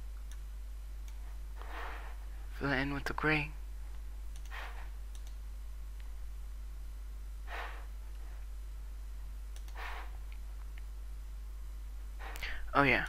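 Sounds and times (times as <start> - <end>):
steady low hum: 0.0 - 13.0
computer mouse clicks: 0.2 - 0.4, 1.0 - 1.7, 4.3 - 5.4, 9.5 - 10.9
breaths close to microphone: 12.2 - 12.7.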